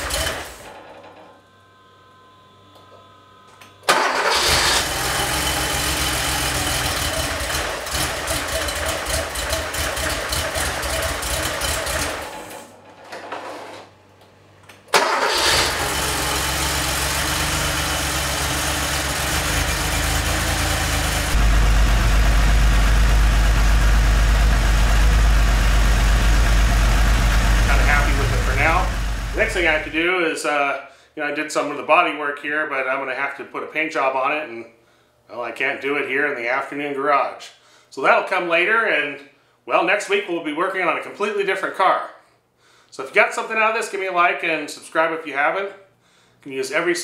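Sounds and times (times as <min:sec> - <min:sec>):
car engine starting and running: 0:00.0 - 0:00.6, 0:03.9 - 0:12.4, 0:14.9 - 0:30.0.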